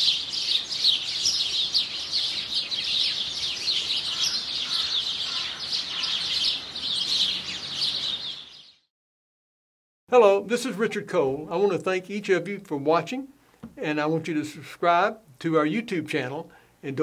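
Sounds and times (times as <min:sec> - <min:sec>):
songbirds chirping: 0:00.0 - 0:08.9.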